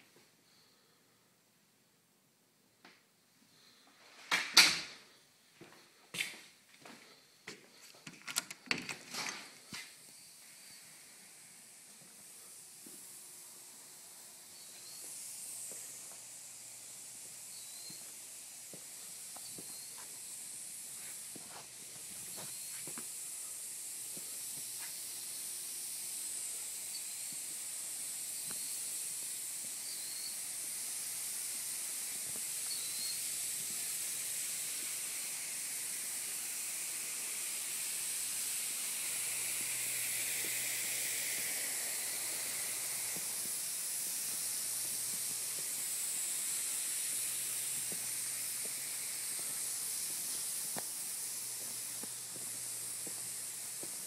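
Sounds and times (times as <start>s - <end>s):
high-pitched hiss: 0.0s - 54.0s.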